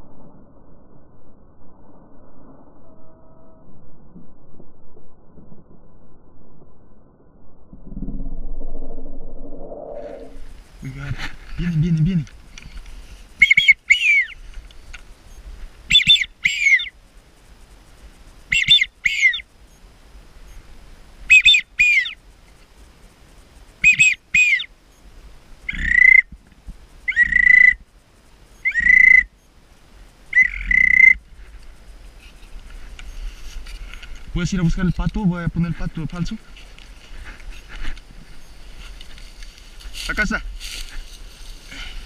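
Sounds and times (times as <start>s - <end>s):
duck whistle call: 13.4s - 14.4s, 15.9s - 16.9s, 18.5s - 19.4s, 21.3s - 22.2s, 23.8s - 24.7s, 25.7s - 26.3s, 27.1s - 27.8s, 28.6s - 29.3s, 30.3s - 31.2s.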